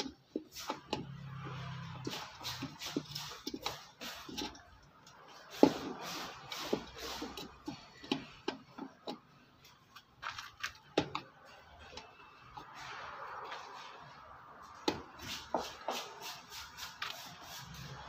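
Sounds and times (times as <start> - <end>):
hand tools tapping on metal: 0.0 - 12.7.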